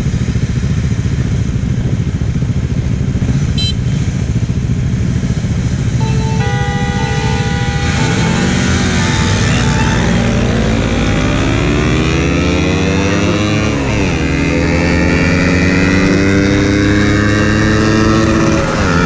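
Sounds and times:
motorcycle engines idling: 0.0s - 19.0s
motorcycle engines revving: 0.0s - 19.0s
horns holding steady tones: 3.6s - 4.0s, 5.9s - 16.8s
short horn toot: 3.6s - 4.0s, 6.0s - 10.8s.

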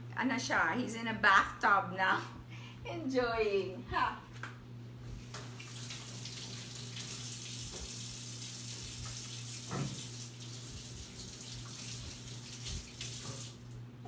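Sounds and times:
tap running into steel sink: 9.0s - 10.1s.

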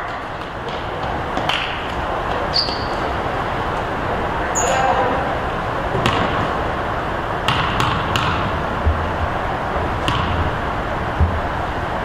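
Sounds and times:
gym background noise: 0.0s - 12.0s
basketball bouncing: 6.0s - 6.5s, 7.4s - 9.2s, 10.0s - 10.6s.

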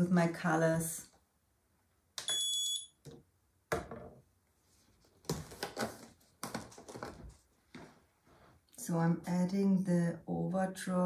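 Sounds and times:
kitchen scale beeping: 2.2s - 3.0s
plastic bottle knocking down: 3.7s - 4.2s.

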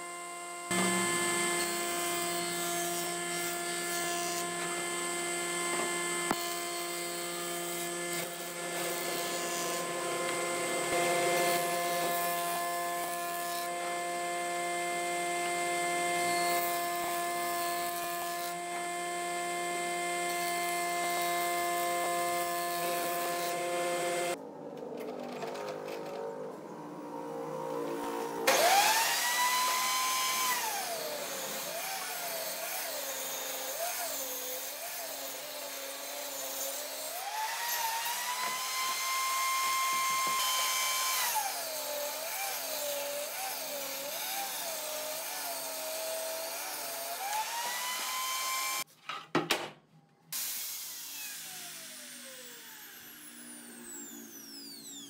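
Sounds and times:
power tool motor humming: 0.0s - 24.4s, 27.8s - 48.9s, 50.4s - 55.0s
hiss of tool work: 50.3s - 55.0s.

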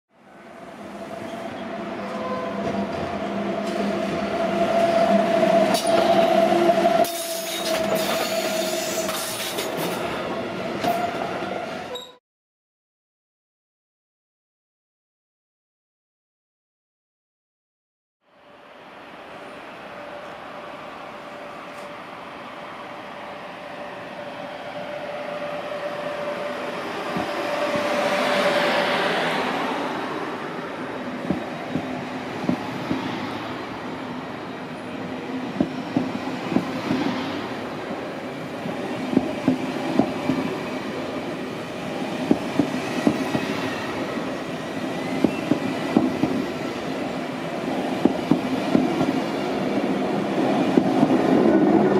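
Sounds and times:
locomotive whine: 18.3s - 32.4s
train rumble: 24.9s - 51.9s.

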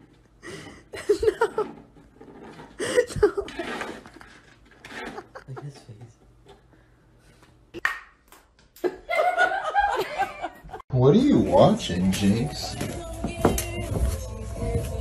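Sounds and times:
person laughing: 0.5s - 1.8s, 2.8s - 3.9s, 4.9s - 6.0s.

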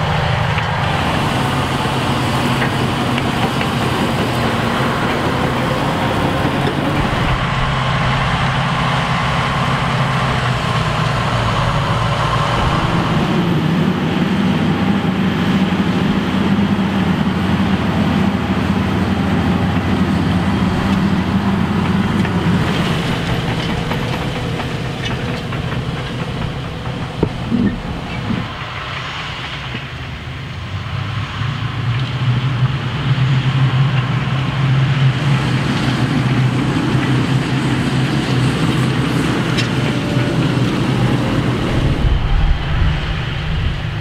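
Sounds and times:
tractor diesel engine under load: 0.0s - 44.0s
disc harrow rattling: 20.7s - 28.7s.

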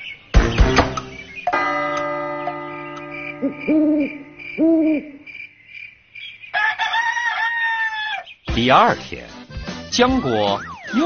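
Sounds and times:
bell-like chime ringing: 1.5s - 4.6s
owl hooting: 3.4s - 5.3s
rooster crowing: 6.5s - 8.3s.

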